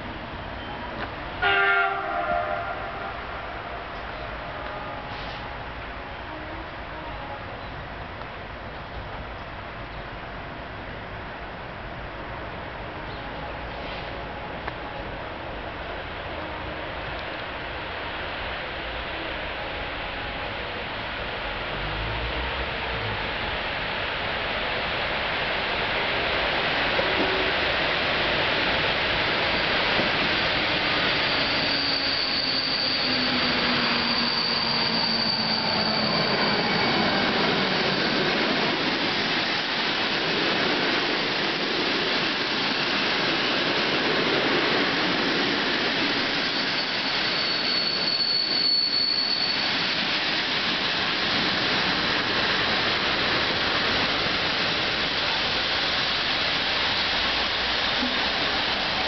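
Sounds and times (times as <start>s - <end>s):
wheels rushing on rails: 0.0s - 59.0s
thin high squeal: 31.1s - 38.2s, 46.3s - 50.2s
locomotive low tone: 58.0s - 59.0s.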